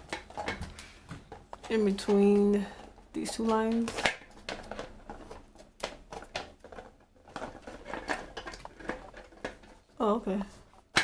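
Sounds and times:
plastic parts clicking and scraping: 0.0s - 11.0s.

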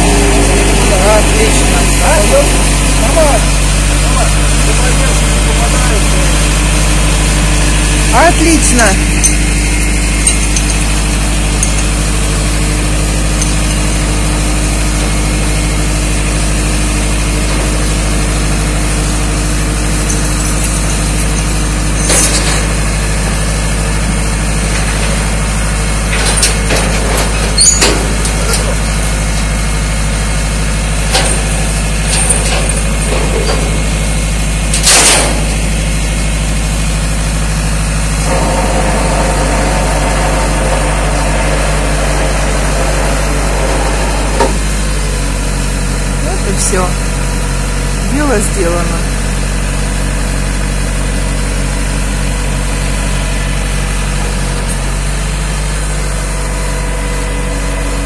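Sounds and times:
truck engine running: 0.0s - 58.0s
metallic clanks and knocks: 20.0s - 22.9s, 26.1s - 29.5s, 31.0s - 35.8s.

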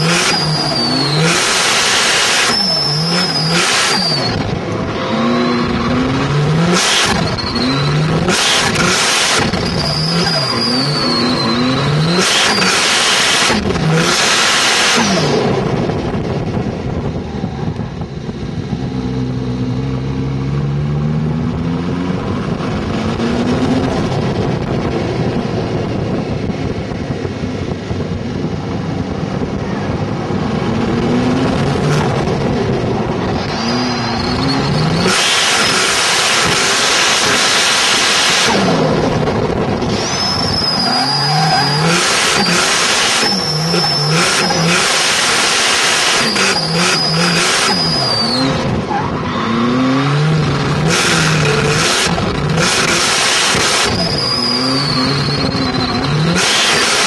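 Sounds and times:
tyre squeal and hiss: 0.0s - 4.4s, 6.8s - 13.5s, 33.5s - 38.6s, 40.0s - 48.6s, 53.0s - 57.0s
turbocharged engine revving: 0.0s - 57.0s
thin high-pitched squeal: 53.8s - 57.0s.

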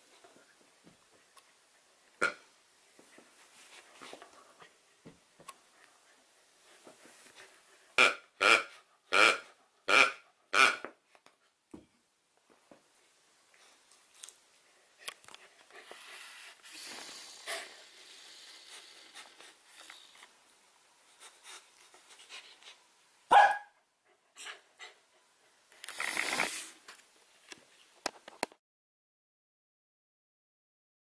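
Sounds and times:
dog breathy noise: 15.5s - 20.1s
puppy barking: 23.3s - 23.8s.

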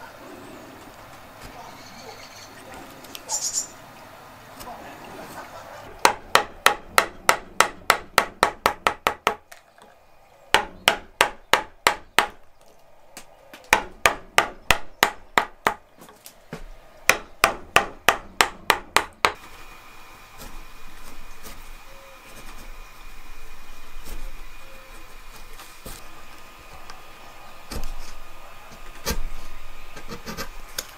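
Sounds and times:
mallet striking chisel: 6.0s - 9.4s, 10.6s - 12.4s, 17.1s - 19.4s
gouge scraping wood: 20.3s - 27.0s, 27.6s - 30.8s.

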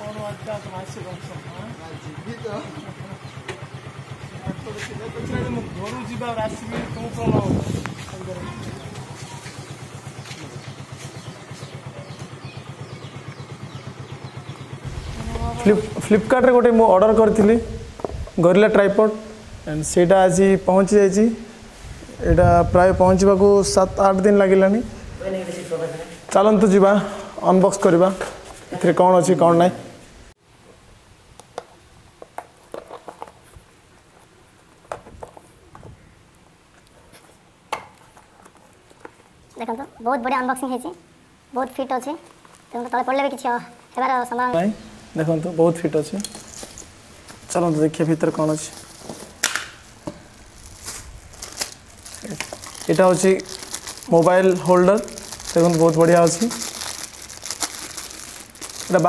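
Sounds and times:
motorcycle engine idling: 0.0s - 18.3s.

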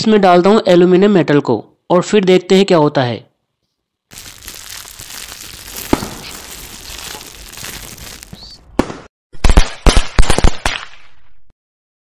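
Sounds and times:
fizzing crackle: 4.1s - 8.5s
sharp pops and cracks: 4.1s - 11.0s.

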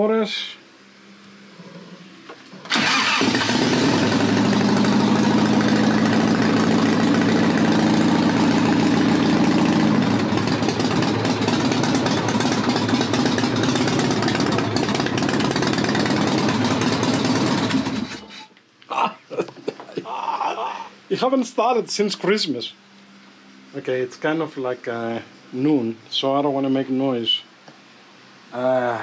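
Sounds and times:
motorcycle engine running: 2.7s - 18.2s.

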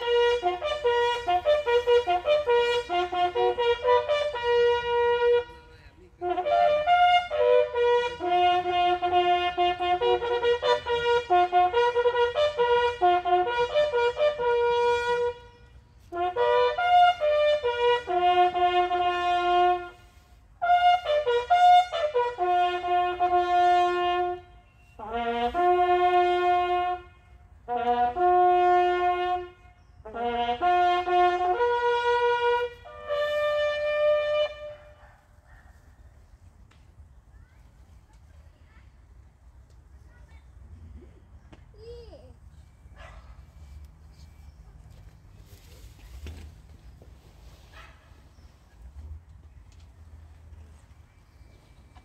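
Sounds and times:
bugle call on brass horn: 0.0s - 35.0s.

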